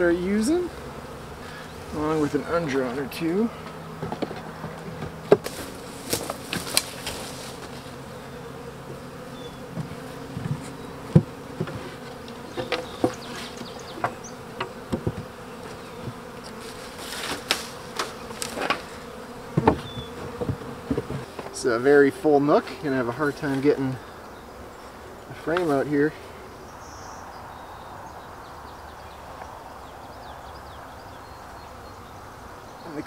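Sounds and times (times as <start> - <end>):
bees buzzing: 0.0 - 33.0
wooden knocks of hive frames: 2.6 - 21.6
hive cover set down: 4.0 - 8.0, 9.7 - 21.6.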